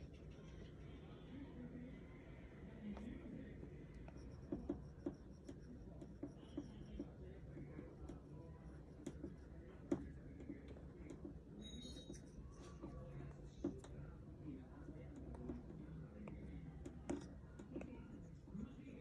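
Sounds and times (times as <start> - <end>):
low background noise: 0.0 - 19.0
stylus tapping on glass screen: 4.0 - 8.2, 15.0 - 18.0.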